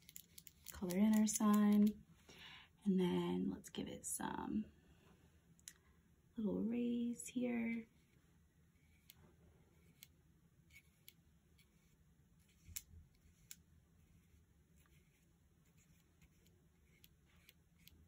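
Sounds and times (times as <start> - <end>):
paintbrush ticks on paper: 12.5 - 18.0.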